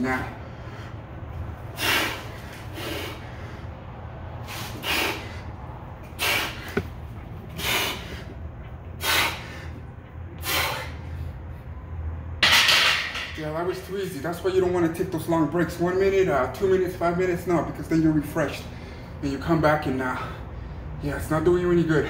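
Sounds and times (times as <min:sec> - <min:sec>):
steady low hum: 0:00.0 - 0:12.4
man breathing forcefully: 0:00.3 - 0:11.8.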